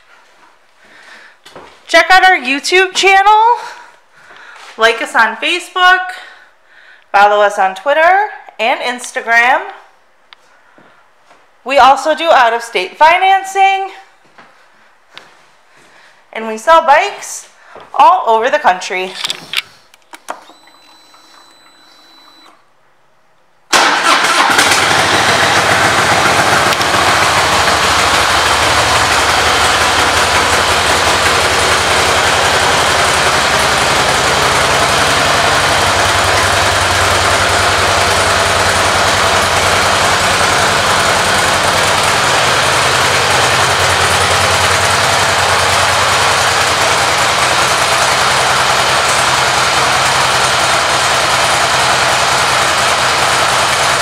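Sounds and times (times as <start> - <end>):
motorcycle engine starting: 23.7 - 54.0
motorcycle engine idling: 24.3 - 54.0.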